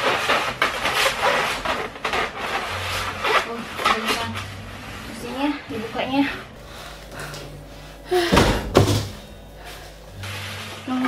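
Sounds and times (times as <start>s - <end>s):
cardboard scraping against foam: 0.0s - 6.3s.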